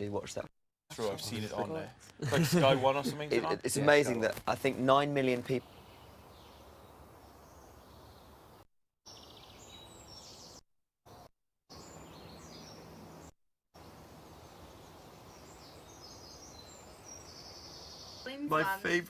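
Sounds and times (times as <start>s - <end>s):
faint birdsong: 5.2s - 19.0s.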